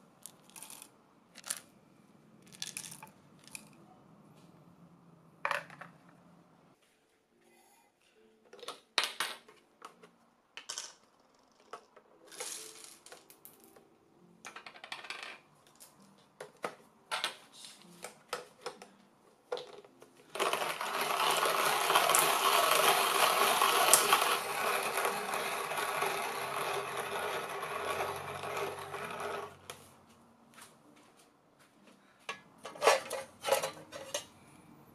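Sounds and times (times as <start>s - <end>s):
clicks and rattles of grinder: 20.3s - 29.6s
coffee grinder crunching: 20.4s - 29.6s.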